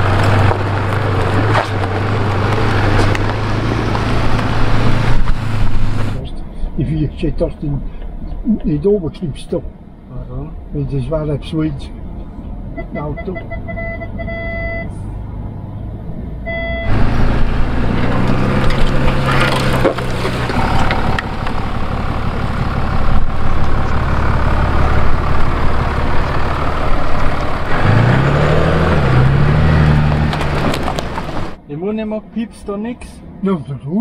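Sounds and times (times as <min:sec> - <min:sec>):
diesel engine running: 0:00.0 - 0:12.8, 0:13.4 - 0:31.6
parking sensor beeps: 0:12.8 - 0:14.9, 0:16.4 - 0:16.9.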